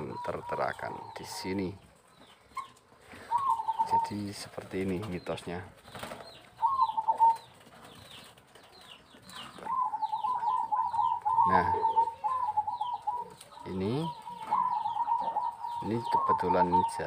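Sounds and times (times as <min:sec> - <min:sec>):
birds chirping: 0:00.0 - 0:17.0
doves cooing: 0:00.0 - 0:17.0.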